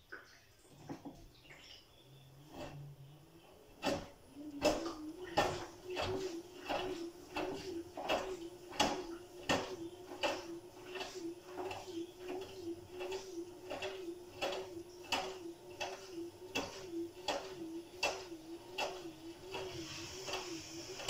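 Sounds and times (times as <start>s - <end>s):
washing machine motor hum: 0.0s - 21.0s.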